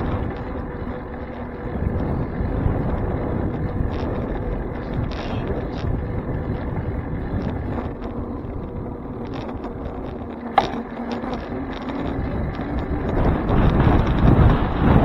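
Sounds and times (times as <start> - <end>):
bicycle tyre and road noise: 0.0 - 15.0
wind rumbling on microphone: 0.0 - 15.0
small rattling clicks: 2.8 - 14.5.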